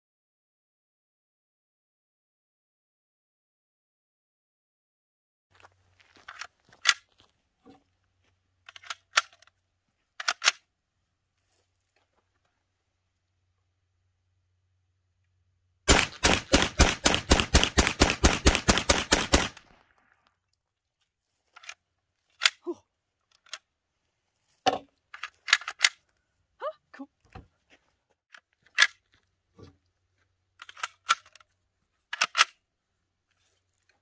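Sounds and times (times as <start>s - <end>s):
metallic gun handling clicks: 8.7s - 9.5s, 10.2s - 10.7s, 25.1s - 26.0s, 30.6s - 32.6s
rapid pistol shots: 15.9s - 19.7s.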